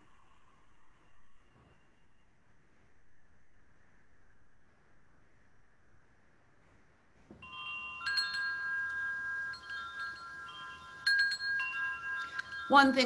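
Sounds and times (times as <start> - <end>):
metal wind chimes ringing: 7.4 - 13.0.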